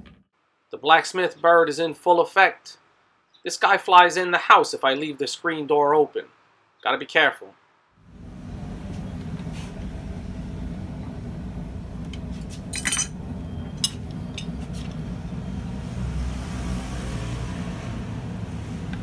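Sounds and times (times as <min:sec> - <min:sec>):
steady low rumble: 0:08.1 - 0:15.6
metal wrench clinks: 0:12.7 - 0:13.2.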